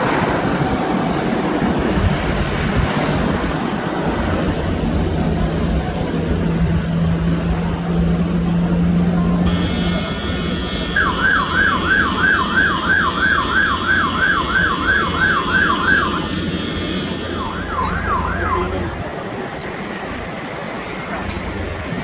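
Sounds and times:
jet engines rumbling and whining: 0:00.0 - 0:22.0
loud sweeping chirp: 0:09.5 - 0:18.5.

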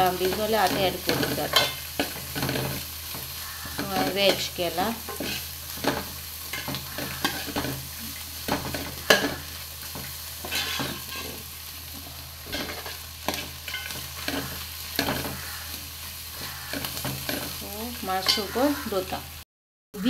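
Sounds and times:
faint sizzle: 0:00.0 - 0:19.4
metal spoon scraping a pot: 0:05.1 - 0:07.9, 0:08.5 - 0:11.4.

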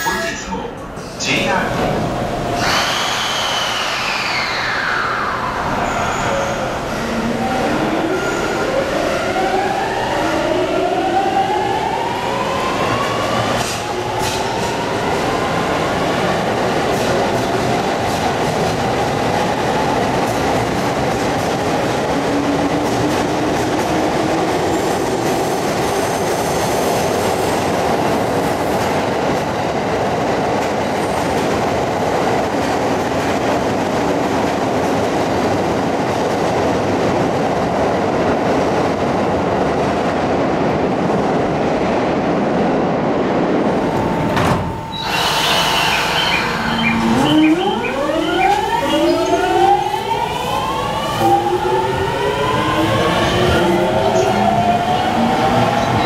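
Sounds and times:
train inverter whining: 0:43.6 - 0:56.0
train motors and wheels running: 0:43.9 - 0:47.3.

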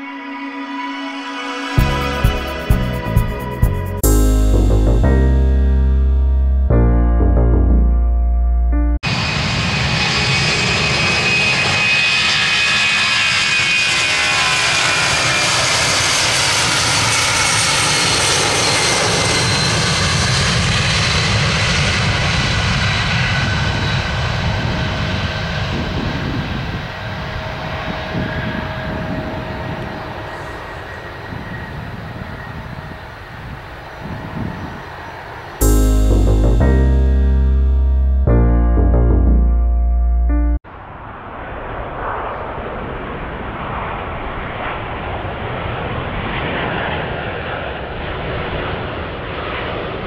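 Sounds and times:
jet engines at takeoff: 0:09.0 - 0:35.6, 0:40.7 - 0:50.0.

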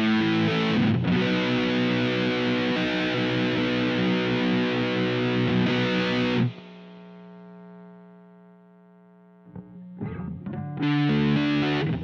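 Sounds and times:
picked guitar notes: 0:00.0 - 0:06.8, 0:09.5 - 0:12.0
fuzzed electric guitar riff: 0:00.0 - 0:08.2, 0:09.4 - 0:12.0.

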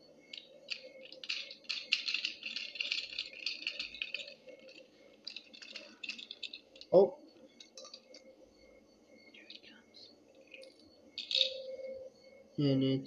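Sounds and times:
plastic bricks clicking and rattling: 0:00.3 - 0:07.0, 0:07.6 - 0:08.2, 0:10.4 - 0:11.7.

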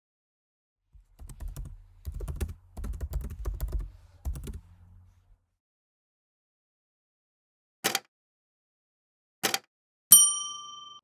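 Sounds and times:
keyboard typing clicks: 0:01.2 - 0:04.6.

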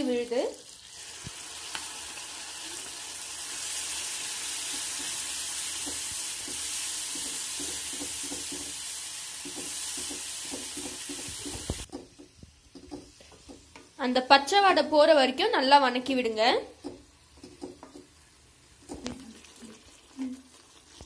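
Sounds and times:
paste sizzling in hot oil: 0:00.0 - 0:14.6, 0:16.8 - 0:21.0
wooden spatula scraping: 0:09.4 - 0:13.8.

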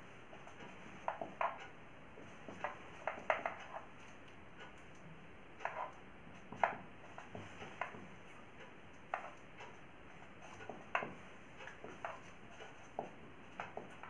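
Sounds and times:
marker writing on a whiteboard: 0:05.6 - 0:08.0, 0:09.1 - 0:14.0.

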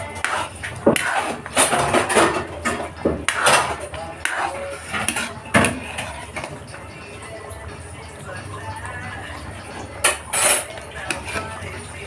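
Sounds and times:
metal ladle scraping a pot: 0:00.0 - 0:07.3, 0:09.8 - 0:12.0.

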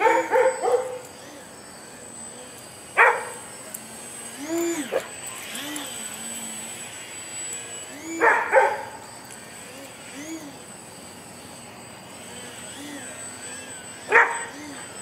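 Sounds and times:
dog barking: 0:00.0 - 0:01.1, 0:03.0 - 0:03.4, 0:08.2 - 0:08.9, 0:14.1 - 0:14.5
dog whining: 0:00.0 - 0:03.4, 0:04.3 - 0:06.7, 0:07.9 - 0:10.8, 0:12.4 - 0:15.0.

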